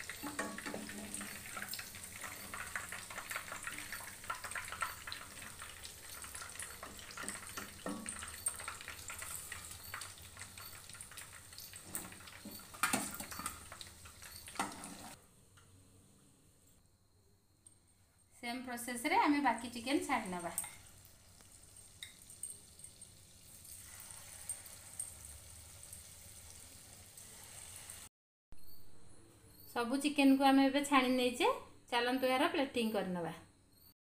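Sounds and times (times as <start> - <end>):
oil sizzling and crackling: 0.0 - 15.2, 19.6 - 28.1
spoon knocking against pan: 6.2 - 11.0.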